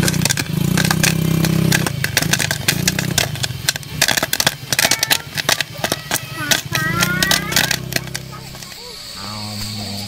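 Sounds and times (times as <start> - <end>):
popcorn popping in a pot: 0.0 - 8.8
low engine-like hum: 0.0 - 10.0.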